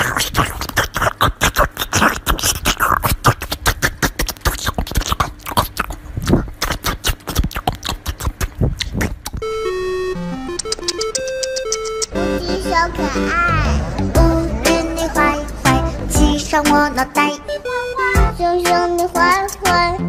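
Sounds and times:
puppy chewing and smacking: 0:00.0 - 0:09.4, 0:10.5 - 0:12.2.

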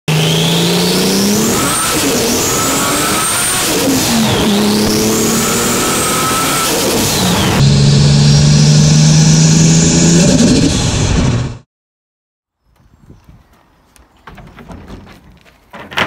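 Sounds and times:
car engine accelerating: 0:00.1 - 0:11.6
turbo whine: 0:00.1 - 0:11.6.

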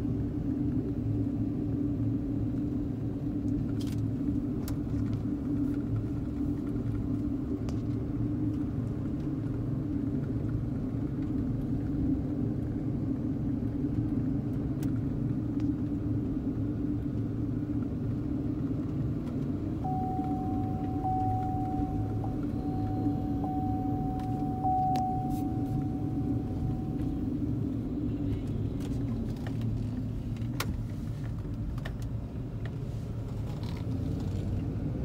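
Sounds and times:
car engine and tyre rumble: 0:00.0 - 0:35.0
thin high tone: 0:19.8 - 0:27.6.

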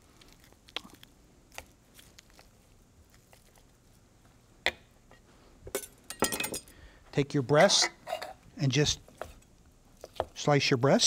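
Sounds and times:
meat pulled by hand squishing: 0:00.0 - 0:04.4.

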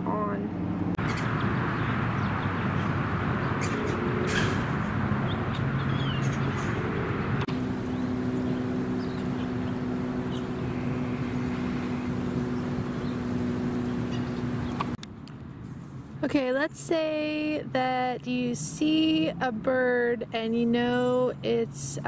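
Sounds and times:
constant low hum: 0:00.0 - 0:22.0
passing traffic: 0:00.0 - 0:22.0
bird chirps: 0:01.0 - 0:06.8, 0:07.8 - 0:14.9.

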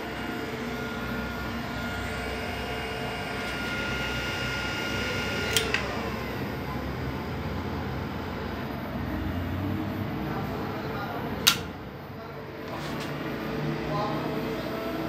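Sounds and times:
cooling fan whine: 0:00.0 - 0:15.0
relay clicks: 0:05.5 - 0:05.9, 0:11.4 - 0:11.8.

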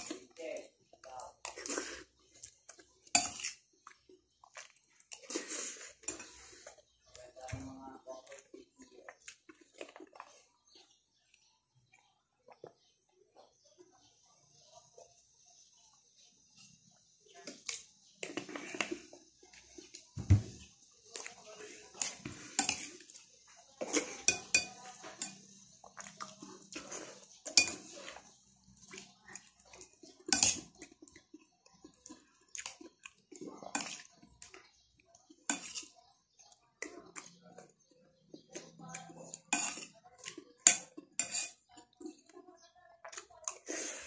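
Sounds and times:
spoon clinking on plate: 0:24.2 - 0:25.5, 0:40.6 - 0:41.6.

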